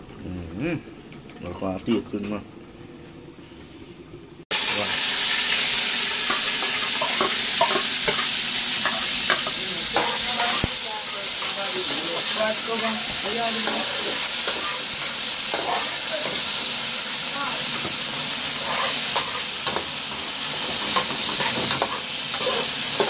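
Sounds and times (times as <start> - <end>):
vegetables sizzling in hot oil: 4.5 - 23.0
spatula scraping a pot: 18.6 - 19.4, 20.8 - 22.8.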